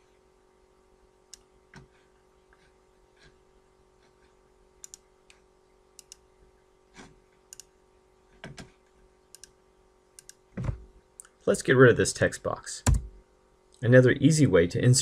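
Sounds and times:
faint steady hum: 0:00.0 - 0:15.0
computer mouse clicks: 0:04.8 - 0:05.4, 0:06.0 - 0:06.2, 0:07.5 - 0:07.7, 0:09.3 - 0:09.6, 0:10.2 - 0:10.4.

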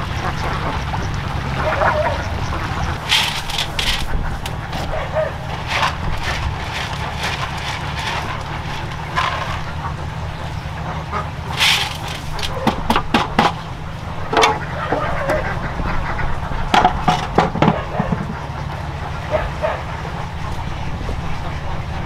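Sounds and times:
steady low rumble: 0:00.0 - 0:22.0
corrugated sheet clattering on metal bin: 0:03.0 - 0:10.2, 0:11.4 - 0:13.7, 0:14.3 - 0:15.2, 0:16.7 - 0:18.6.

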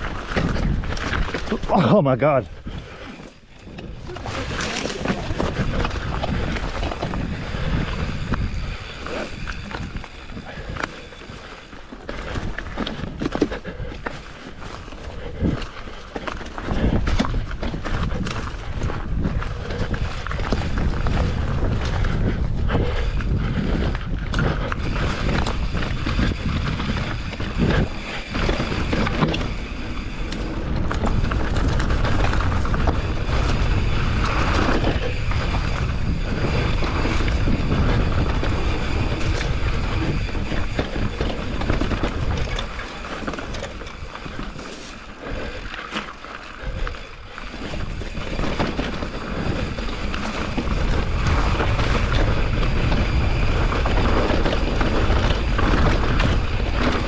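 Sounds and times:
bike rattling over bumps: 0:00.0 - 0:57.0
bike tyres on dirt and rock: 0:00.0 - 0:57.0
wind buffeting microphone: 0:00.0 - 0:57.0.

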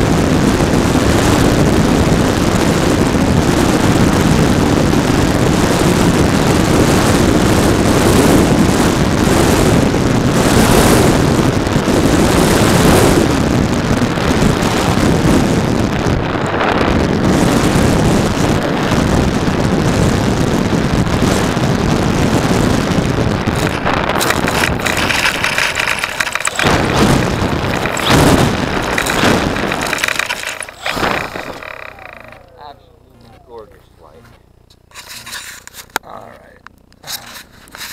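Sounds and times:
wind rushing over camera: 0:00.0 - 0:33.4
model plane motor and propeller: 0:00.0 - 0:37.9
model plane rolling on grass: 0:22.4 - 0:33.4.

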